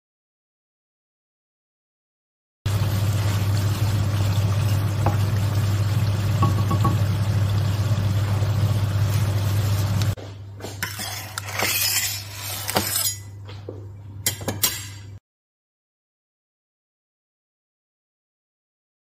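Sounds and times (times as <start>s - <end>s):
prawns sizzling in frying pan: 2.7s - 10.2s
clinks on steel worktop: 14.2s - 15.1s.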